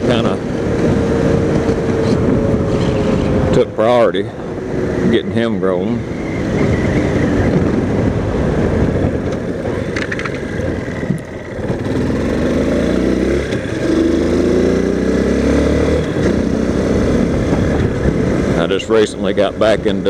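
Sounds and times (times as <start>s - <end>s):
wind rush: 0.0s - 19.8s
motorcycle engine running: 0.0s - 20.0s.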